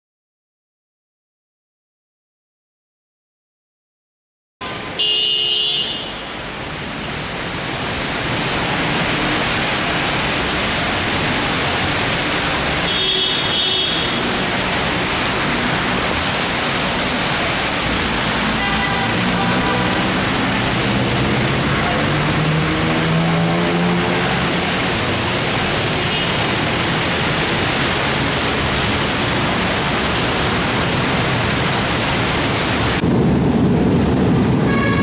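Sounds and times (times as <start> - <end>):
floodwater rushing: 4.6 - 35.0
vehicles driving through water: 4.6 - 35.0
vehicle engine: 14.0 - 34.3.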